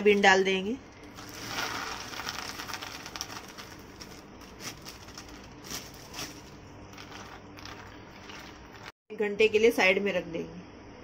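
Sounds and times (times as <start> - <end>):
plastic bag crinkle: 1.0 - 9.0.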